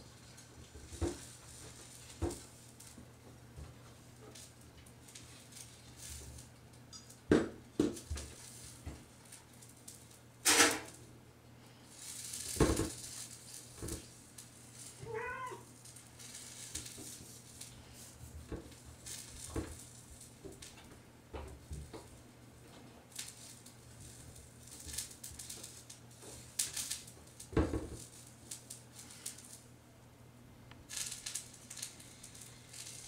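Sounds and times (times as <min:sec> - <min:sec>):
cat meowing: 0:15.0 - 0:15.7.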